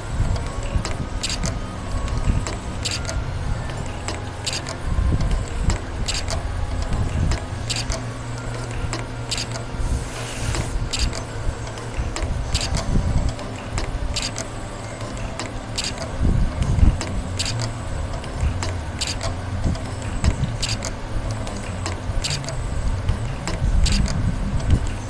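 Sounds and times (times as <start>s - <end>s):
sharp mechanical clicks: 0.4s - 9.8s, 10.5s - 25.0s
brief hiss: 9.9s - 10.8s.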